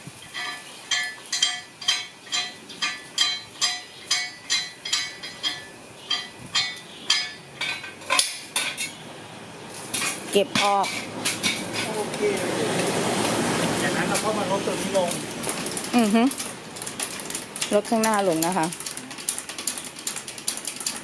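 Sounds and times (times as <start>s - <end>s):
jack metallic clinks: 0.3s - 9.0s.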